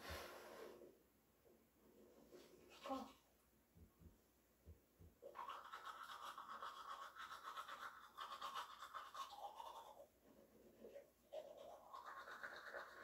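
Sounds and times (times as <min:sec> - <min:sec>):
toothbrush scrubbing teeth: 0:05.2 - 0:10.1, 0:10.7 - 0:13.0.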